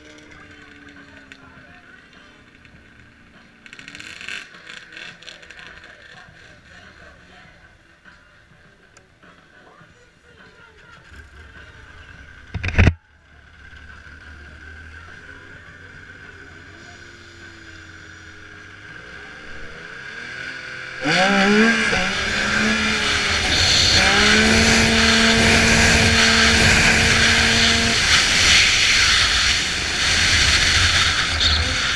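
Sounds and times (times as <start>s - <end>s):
snowmobile engine revving: 13.6s - 31.9s.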